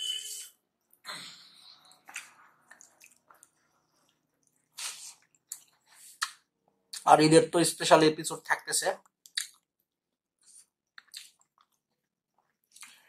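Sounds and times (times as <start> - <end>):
chewing: 1.8 - 6.4, 10.9 - 13.0
short slurp: 4.7 - 5.3.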